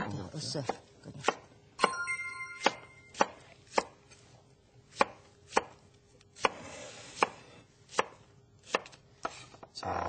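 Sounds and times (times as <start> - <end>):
knife slicing onion on cutting board: 0.4 - 2.0, 2.6 - 9.6.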